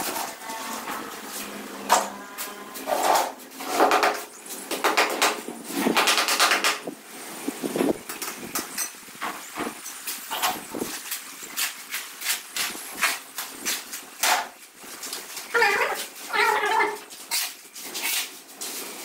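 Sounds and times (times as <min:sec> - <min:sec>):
trowel scraping mortar: 0:02.4 - 0:04.0, 0:16.9 - 0:18.4.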